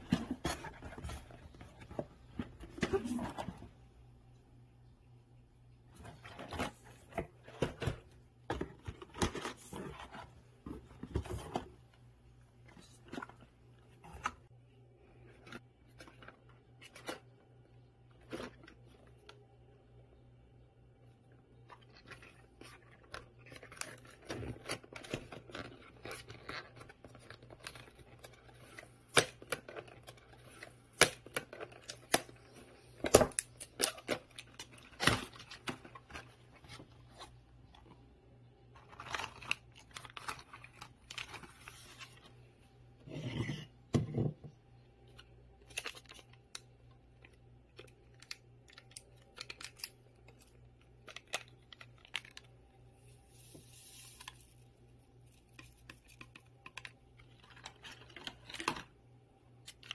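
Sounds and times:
cardboard and packet rustling: 0.0 - 3.7, 5.9 - 11.9, 21.6 - 42.4.

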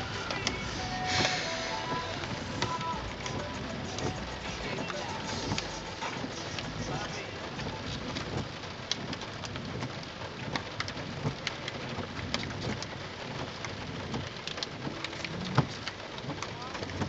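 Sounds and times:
rain on car windshield: 0.0 - 17.0.

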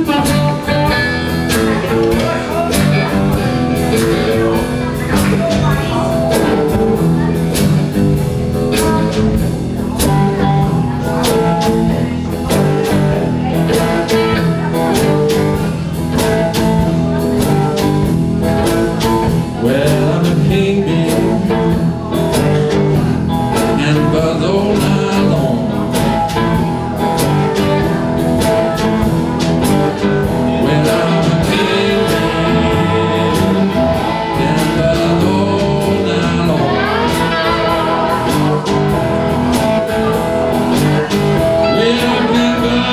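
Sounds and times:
blues band playing: 0.0 - 42.9
drum kit steady beat: 0.0 - 42.9
electric guitars: 0.0 - 42.9.

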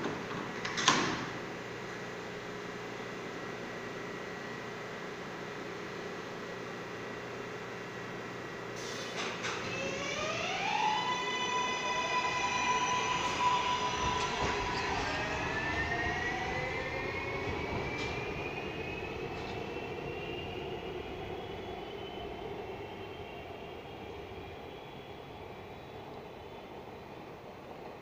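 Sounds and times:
train wheels rumbling on rails: 10.9 - 28.0.

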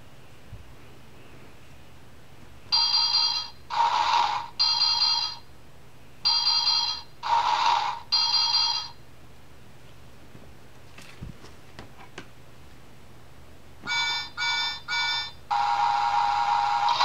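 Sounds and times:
ringing electronic tones: 13.9 - 15.4.

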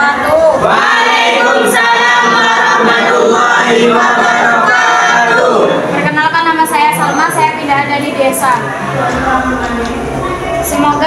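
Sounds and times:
group of voices singing: 0.0 - 6.0.

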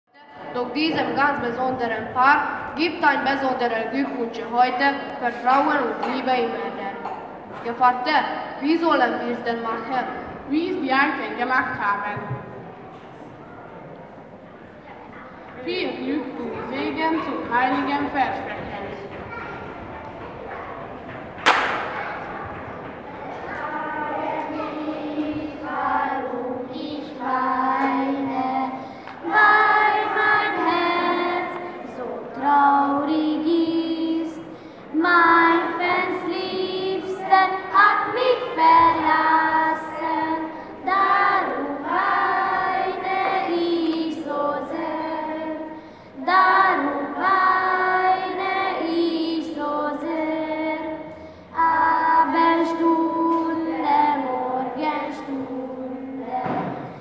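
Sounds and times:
children singing a folk song: 15.8 - 57.0.

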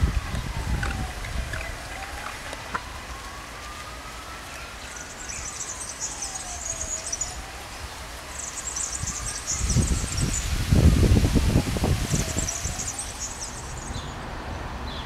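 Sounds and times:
distant siren wailing: 0.0 - 14.3
high chirring: 8.3 - 11.0, 11.6 - 14.2.

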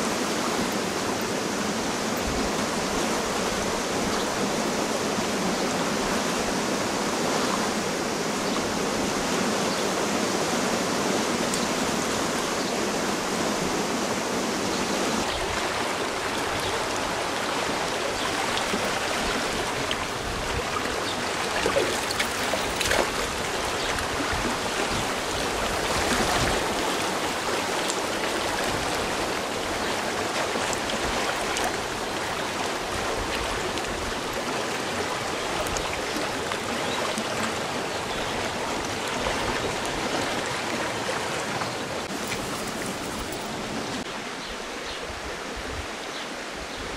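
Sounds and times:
stream rushing over stones: 0.0 - 46.9.

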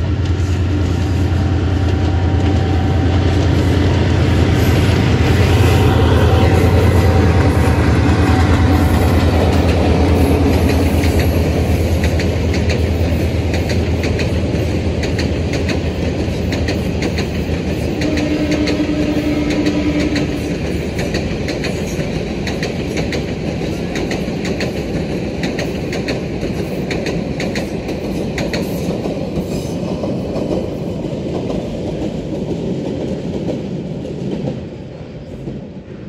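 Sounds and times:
locomotive engine rumble: 0.0 - 20.4
train wheels clacking on rail joints: 0.0 - 35.7.

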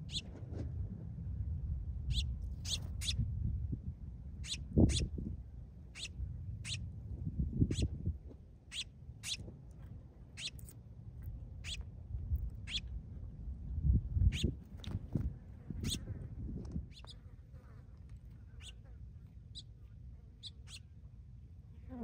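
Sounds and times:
finches chirping: 0.0 - 0.2, 2.1 - 3.2, 4.4 - 5.1, 5.9 - 6.8, 8.7 - 9.4, 10.4 - 10.7, 12.6 - 12.9, 14.3 - 14.6, 15.8 - 16.0, 16.9 - 17.2, 18.5 - 18.8, 20.4 - 20.9
low rumble: 0.0 - 17.0.

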